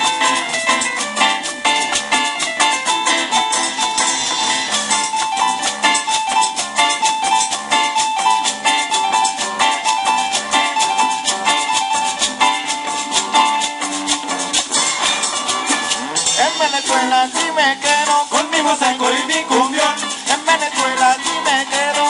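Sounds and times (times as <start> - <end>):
band playing dance music: 0.0 - 22.0
high melodic line: 0.0 - 22.0
metal guiro scraping: 13.8 - 21.7.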